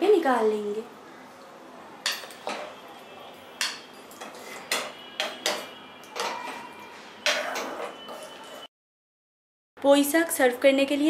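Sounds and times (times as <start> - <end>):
spatula clinking on pan and bowl: 2.0 - 2.8, 3.6 - 8.4.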